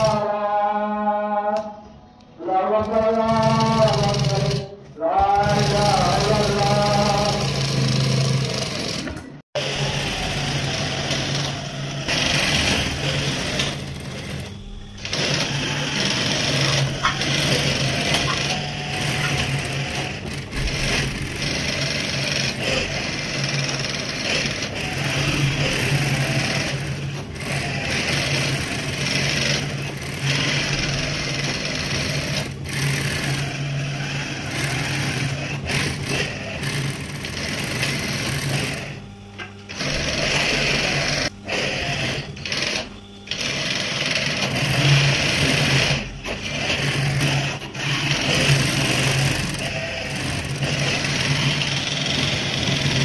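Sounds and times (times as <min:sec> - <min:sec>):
sewing machine motor humming: 0:00.0 - 0:00.4, 0:02.7 - 0:53.0
sewing machine needle rattling: 0:03.2 - 0:04.7.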